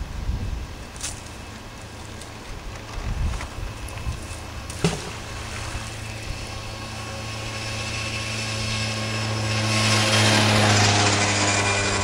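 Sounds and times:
motor engine droning: 0:01.4 - 0:12.0
magnet splashing into water: 0:04.7 - 0:05.9.

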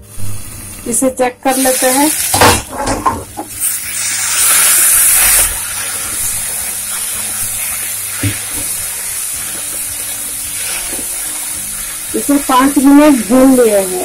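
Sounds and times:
vegetables sizzling in a pan: 0:00.0 - 0:14.0
spatula knocking on pan: 0:08.1 - 0:08.8.

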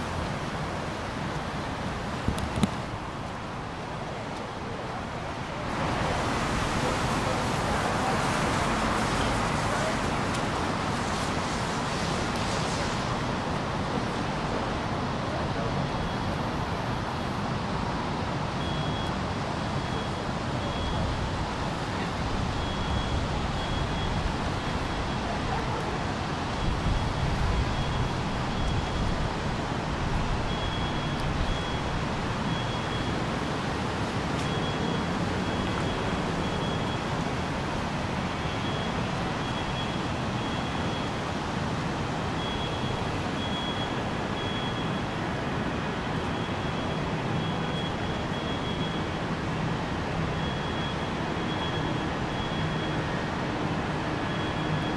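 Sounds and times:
street traffic with cars passing: 0:00.0 - 0:54.9
faint high-pitched beeping: 0:16.0 - 0:17.4, 0:18.6 - 0:19.2, 0:19.8 - 0:21.2, 0:30.4 - 0:33.3, 0:34.4 - 0:37.2, 0:38.3 - 0:41.2, 0:42.4 - 0:45.2, 0:46.1 - 0:49.2, 0:50.3 - 0:53.2, 0:54.3 - 0:54.9.

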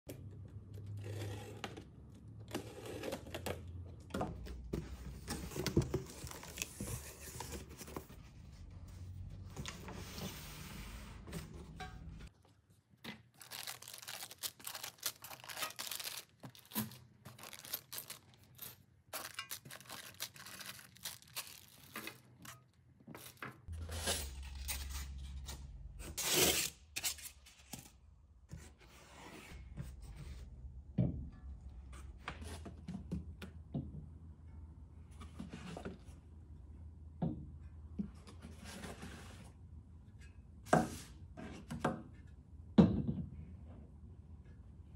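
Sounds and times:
plastic bags crinkling: 0:13.3 - 0:22.5
packing tape tearing: 0:13.4 - 0:22.2.

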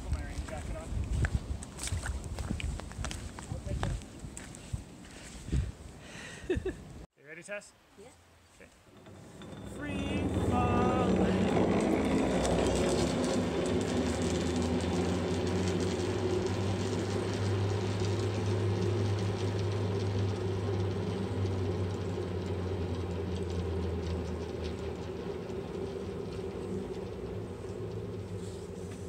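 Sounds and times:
cable car pulleys rolling: 0:08.9 - 0:29.0.

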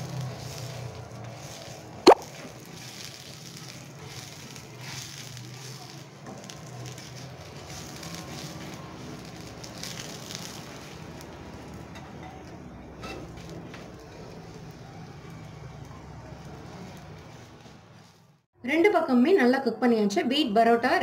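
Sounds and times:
oil sizzling and crackling: 0:00.0 - 0:18.5
spatula scraping pan: 0:13.0 - 0:13.6.

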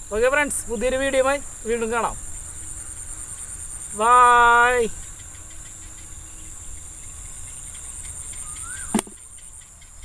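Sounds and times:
insects chirring: 0:00.0 - 0:10.0
sharp click: 0:08.0 - 0:09.3.

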